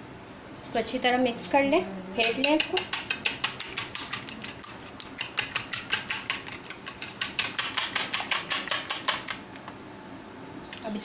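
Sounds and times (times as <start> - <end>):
whisk clicking against bowl: 2.2 - 9.4.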